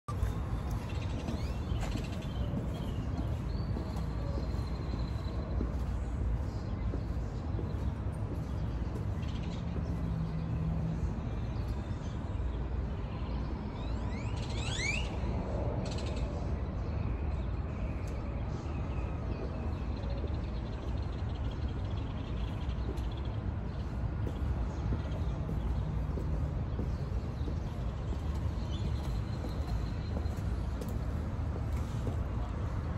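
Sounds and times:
bird chirping: 0.1s - 12.6s.

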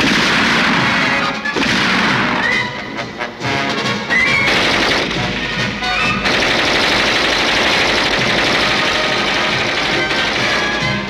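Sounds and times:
cartoon soundtrack music: 0.0s - 6.5s
dense rapid rattle: 6.3s - 10.7s.

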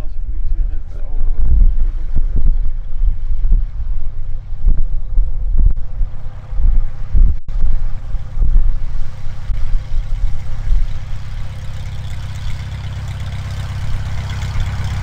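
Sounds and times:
wind buffeting the microphone: 0.0s - 11.7s
light aircraft engine and propeller: 5.3s - 15.0s.

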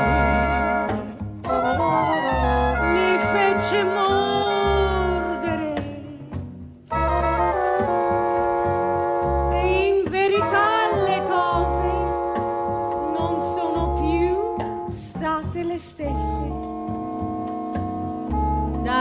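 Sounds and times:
jazz ensemble playing: 0.0s - 19.0s
woman singing: 2.1s - 6.4s, 9.5s - 12.2s, 13.0s - 16.6s, 18.8s - 19.0s.

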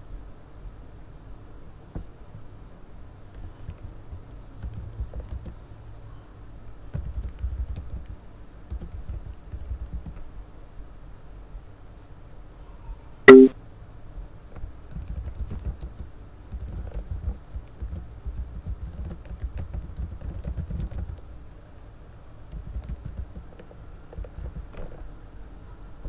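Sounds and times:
computer keyboard typing: 3.6s - 5.6s, 6.9s - 10.2s, 14.9s - 21.3s, 22.5s - 24.9s.

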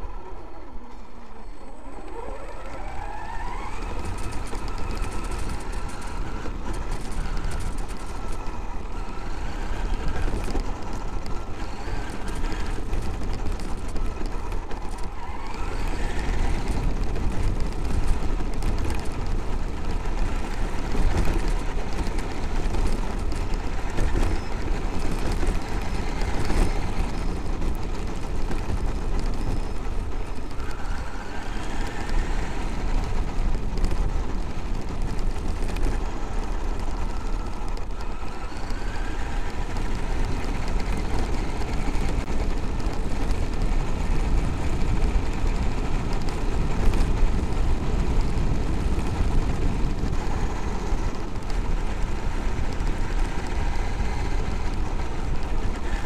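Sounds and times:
electric motor whine: 0.0s - 34.2s
tyres rumbling on gravel: 0.0s - 56.0s.

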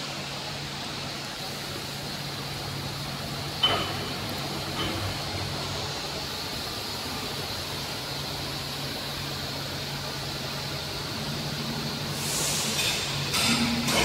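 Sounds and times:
laser cutting machine hum and hiss: 0.0s - 14.0s
loud hiss: 12.0s - 14.0s.

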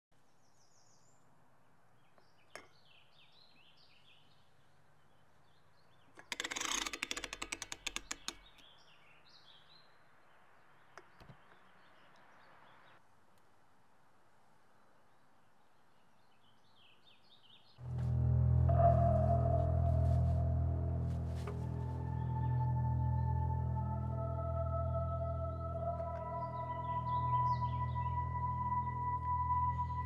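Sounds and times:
small birds chirping: 7.6s - 13.0s.

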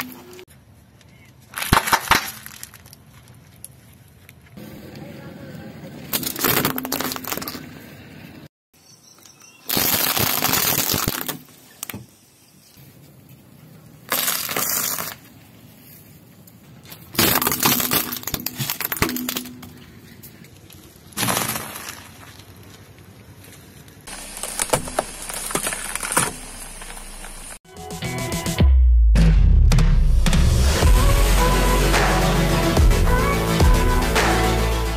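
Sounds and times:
tyre crushing objects: 21.2s - 22.5s, 24.1s - 27.6s.

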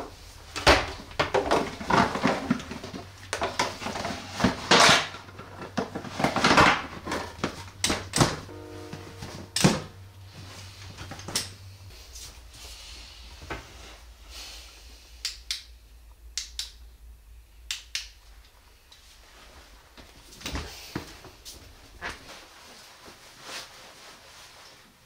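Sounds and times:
faint low hum: 0.0s - 25.0s
plastic bottles crinkling: 0.6s - 8.4s.

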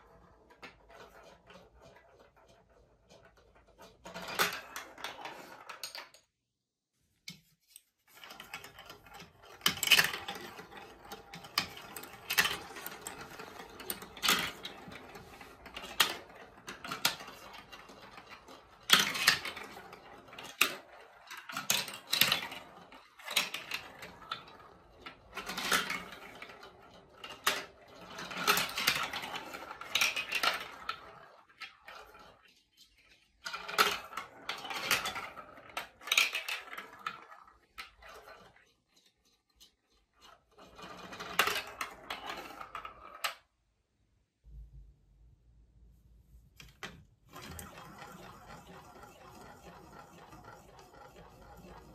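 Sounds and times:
balls rattling through marble run: 0.0s - 6.3s, 8.1s - 43.5s, 46.6s - 51.9s
marbles clicking and knocking: 8.3s - 43.5s, 46.7s - 51.9s.

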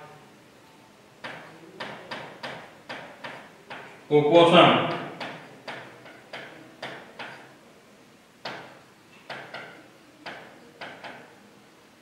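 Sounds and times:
marker tapping on whiteboard: 1.2s - 4.0s, 4.9s - 7.5s, 8.4s - 11.3s.

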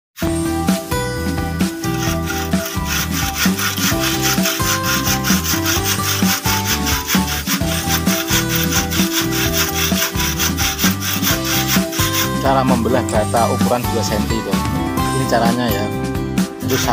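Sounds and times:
background music: 0.2s - 16.9s
hand saw cutting concrete block: 1.4s - 14.4s, 16.6s - 16.9s.

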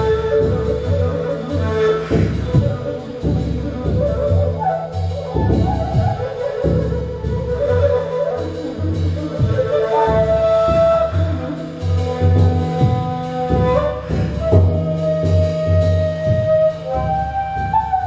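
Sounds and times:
soft deep drum beats: 0.0s - 8.3s, 12.0s - 18.0s
reed flute melody: 0.0s - 18.0s.

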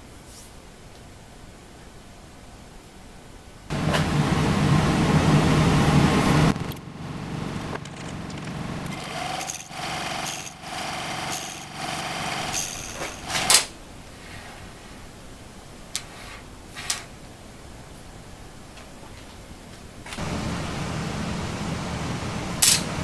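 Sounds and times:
steady hum: 0.0s - 15.9s, 19.9s - 23.0s
metal lathe whining: 8.9s - 13.5s, 20.2s - 23.0s.

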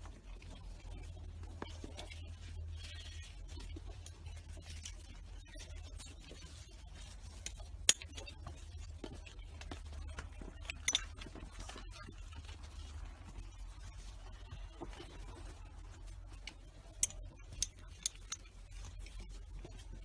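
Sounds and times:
metal buckle clicks: 7.9s - 8.2s, 10.8s - 11.1s, 17.0s - 18.4s.

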